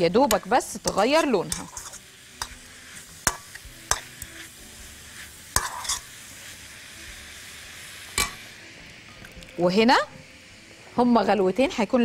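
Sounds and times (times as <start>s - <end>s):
meat sizzling in a pan: 0.0s - 12.0s
metal spoon scraping a pan: 0.1s - 6.4s.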